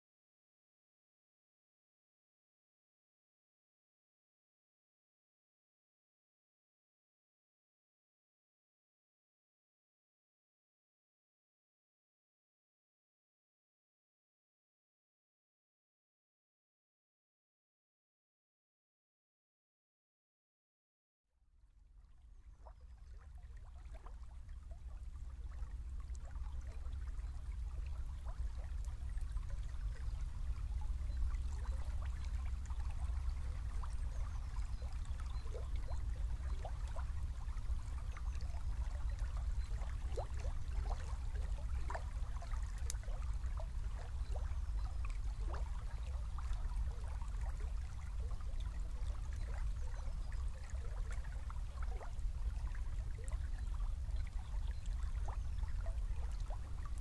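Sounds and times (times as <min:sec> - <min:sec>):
river water trickling and gurgling: 0:21.6 - 0:57.0.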